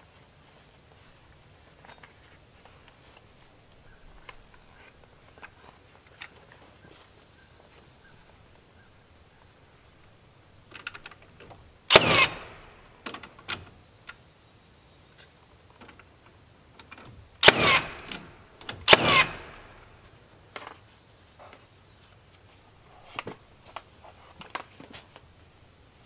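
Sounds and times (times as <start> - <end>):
nail gun firing: 11.9 - 13.6, 17.4 - 20.0.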